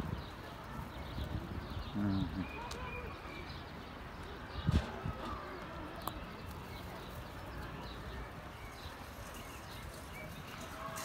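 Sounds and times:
pigeons pecking and shuffling: 4.0s - 11.0s.

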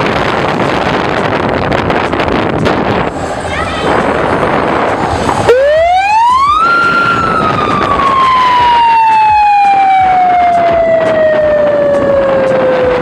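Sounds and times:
siren winding up and down: 5.5s - 13.0s.

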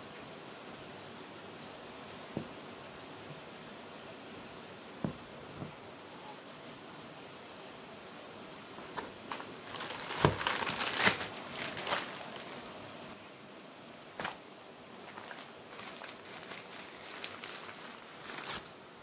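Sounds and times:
plastic packaging crinkling: 9.0s - 12.8s, 14.2s - 14.4s, 15.0s - 18.8s.

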